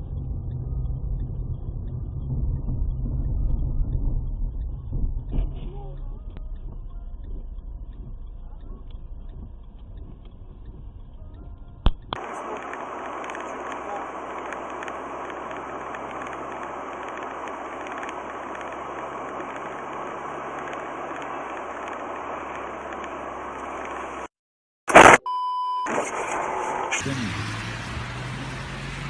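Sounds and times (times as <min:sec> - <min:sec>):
steady beep: 0:00.0 - 0:12.1, 0:25.0 - 0:25.9
car road and engine noise: 0:00.0 - 0:24.3, 0:25.9 - 0:29.0.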